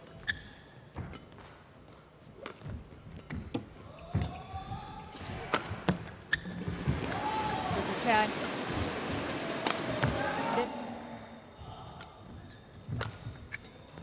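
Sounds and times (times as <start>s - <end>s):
court shoes squeaking: 0.0s - 10.7s, 12.0s - 14.0s
rackets striking shuttlecock: 12.9s - 14.0s.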